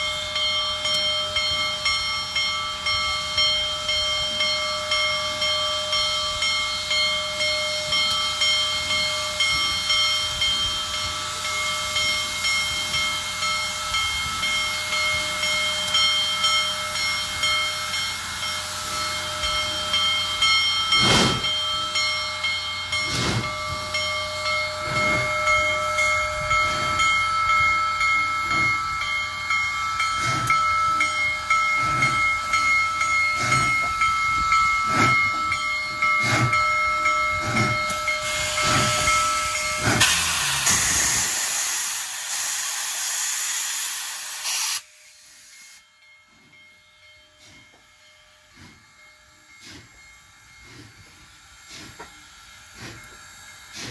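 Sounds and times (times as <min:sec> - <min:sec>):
high ringing chord: 0:00.0 - 0:40.6
steam hissing: 0:00.0 - 0:53.9
steam locomotive exhaust beats: 0:00.0 - 0:53.9.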